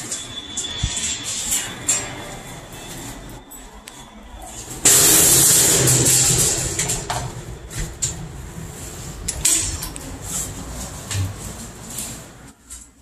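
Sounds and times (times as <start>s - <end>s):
loud rushing noise: 4.6s - 12.4s.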